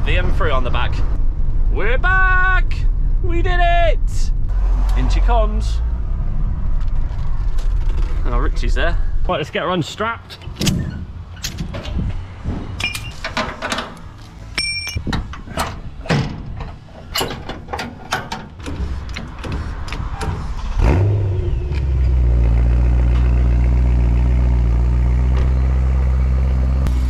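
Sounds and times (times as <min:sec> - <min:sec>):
ratchet straps clicking and clanking: 0:12.8 - 0:20.6
car engine starting and idling: 0:15.1 - 0:27.0.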